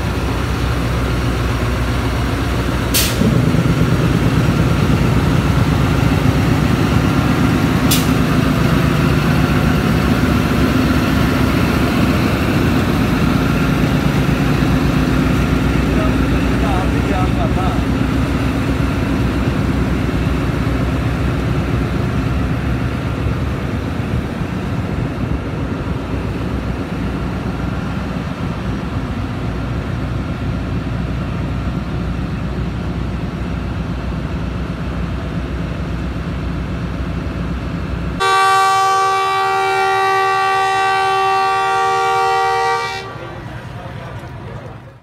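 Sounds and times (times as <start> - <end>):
locomotive engine idling: 0.0 - 45.0
locomotive horn chord: 38.2 - 43.6.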